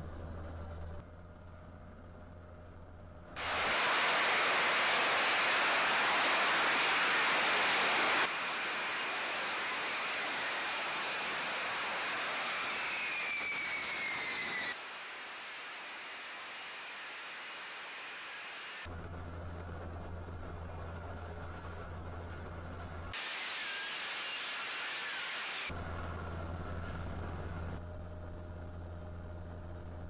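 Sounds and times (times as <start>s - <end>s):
jet engine falling whine: 0.0s - 30.0s
jet engine roaring: 3.4s - 18.9s, 23.1s - 25.7s.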